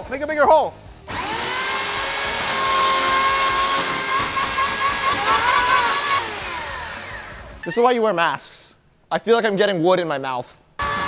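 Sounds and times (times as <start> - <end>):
chainsaw cutting plywood: 1.1 - 7.5, 10.8 - 11.0
chainsaw motor whining: 1.1 - 7.6, 10.8 - 11.0.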